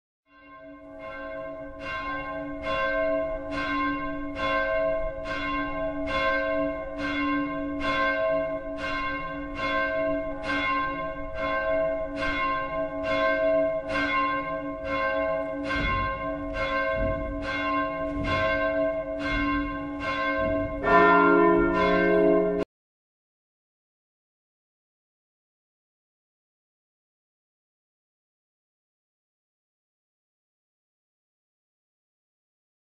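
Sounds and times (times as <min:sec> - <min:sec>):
church bell tolling: 0:00.3 - 0:22.7
deeper bell ringing: 0:00.3 - 0:22.7.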